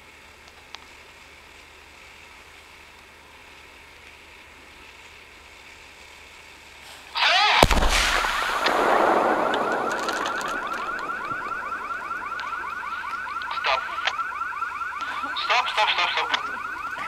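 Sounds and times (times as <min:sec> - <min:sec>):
rapid falling whine: 0:07.2 - 0:17.0
loud explosion with deep boom: 0:07.5 - 0:13.4.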